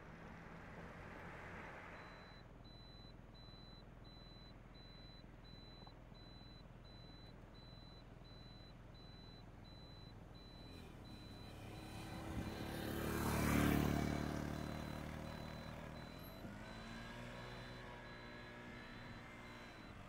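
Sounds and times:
vehicle passing by: 0:00.0 - 0:02.2, 0:10.7 - 0:20.0
motorcycle engine approaching: 0:11.0 - 0:20.0.

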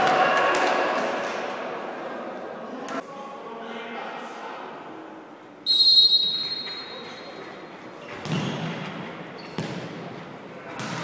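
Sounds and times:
referee whistle blast: 0:05.7 - 0:07.0.

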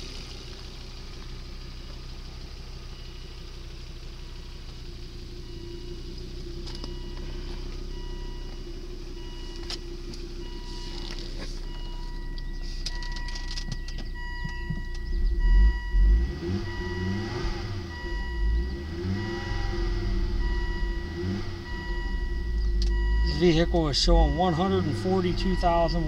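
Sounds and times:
car engine idling and revving: 0:00.0 - 0:26.0
car warning chime: 0:05.4 - 0:26.0.

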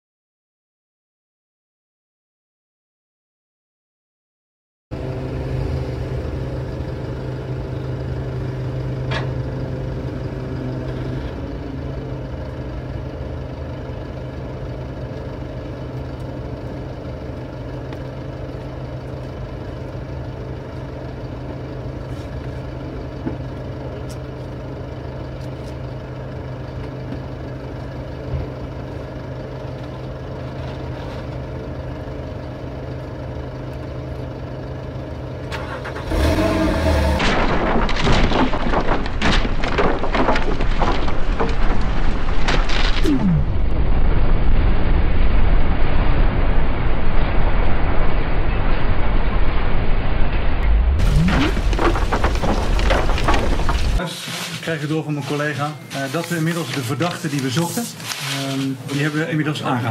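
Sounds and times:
diesel engine idling: 0:04.9 - 0:42.5, 0:50.6 - 0:59.9.

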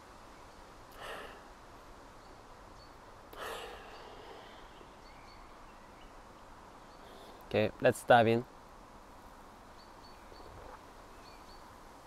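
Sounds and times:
man sniffing: 0:03.4 - 0:04.6.

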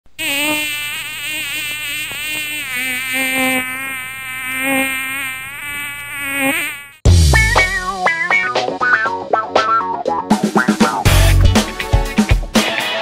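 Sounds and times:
flying insect buzzing: 0:00.1 - 0:07.0.

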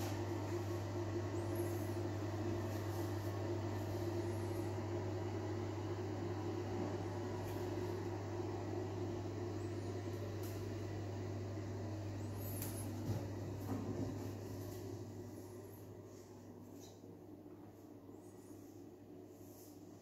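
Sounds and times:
fan electrical hum: 0:00.0 - 0:20.0.

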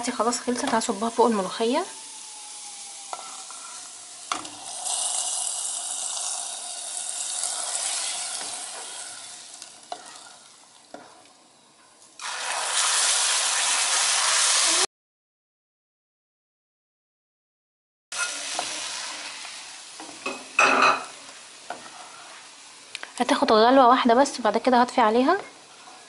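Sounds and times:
hot oil sizzling: 0:00.0 - 0:11.3, 0:12.1 - 0:14.9, 0:18.1 - 0:26.0.

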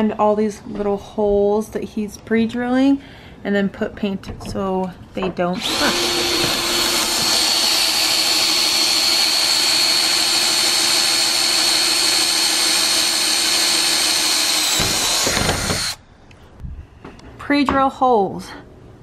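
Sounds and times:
cordless drill whining: 0:05.6 - 0:16.0.

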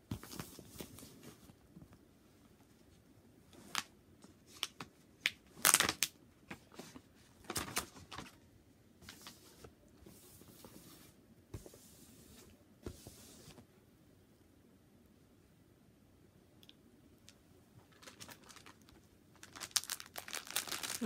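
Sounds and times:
plastic packaging crinkling: 0:05.6 - 0:06.2, 0:17.9 - 0:21.0.

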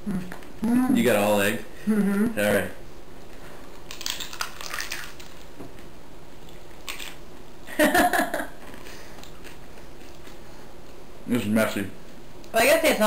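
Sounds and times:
person laughing: 0:01.8 - 0:02.4, 0:07.7 - 0:08.6
taco shell crunching: 0:03.8 - 0:05.5.

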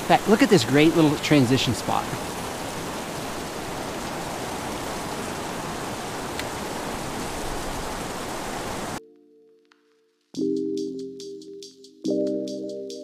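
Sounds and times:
river rushing over rapids: 0:00.0 - 0:09.0.

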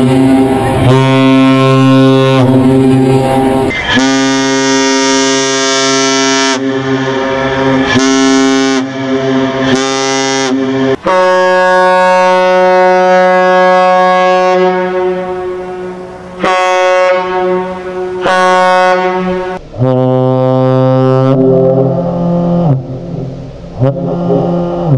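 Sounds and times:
deep ship horn blasts: 0:00.0 - 0:24.9
higher-pitched ship horn: 0:00.0 - 0:24.9.

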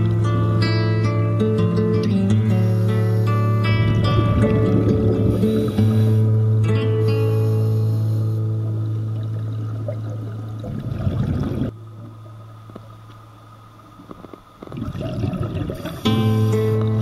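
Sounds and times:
steady low hum: 0:00.0 - 0:17.0
underwater exhaled air bubbles: 0:02.5 - 0:06.6, 0:08.5 - 0:17.0.

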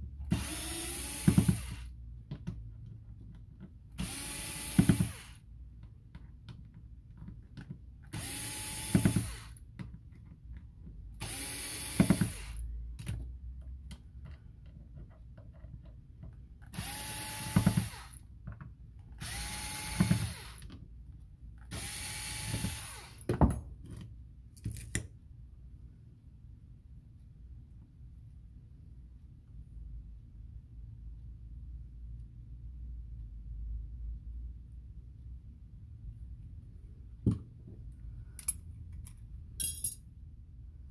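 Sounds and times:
sharp clicks of parts handled: 0:38.3 - 0:40.0.

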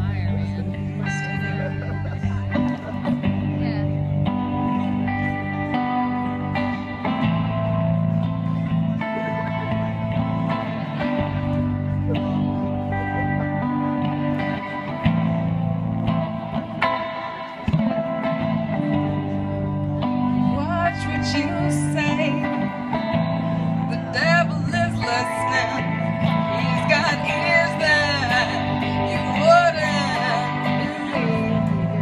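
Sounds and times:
amplified electric guitar: 0:00.0 - 0:32.0
woman singing: 0:20.4 - 0:23.0, 0:23.8 - 0:32.0.

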